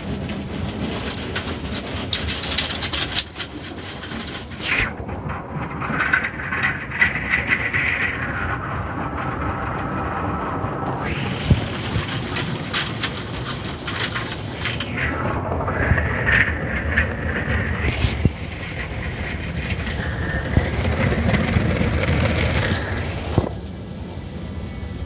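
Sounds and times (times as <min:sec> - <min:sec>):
car wash machinery rumbling: 0:00.0 - 0:25.0
hissing: 0:04.1 - 0:24.0
water spraying: 0:10.9 - 0:18.7
short whoosh: 0:14.4 - 0:18.7.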